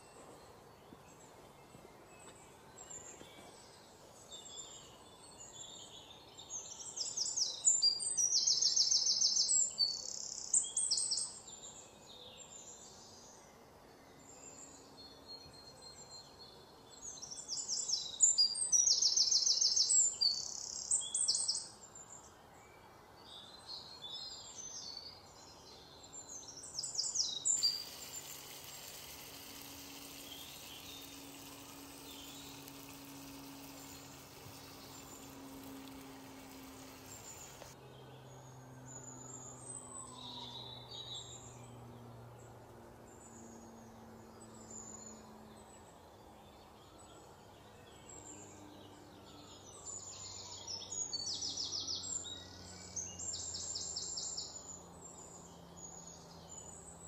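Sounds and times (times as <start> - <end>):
birds chirping: 25.9 - 37.8
high bird trills: 26.9 - 37.8.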